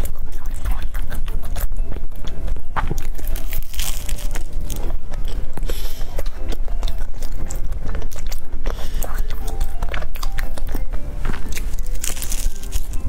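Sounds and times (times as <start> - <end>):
pastry crunching while chewed: 0.0 - 13.0.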